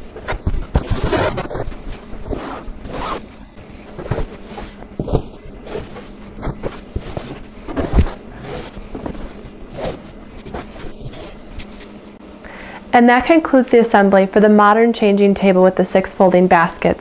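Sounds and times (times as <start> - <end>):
baskets knocking and scraping wood: 0.0 - 12.0.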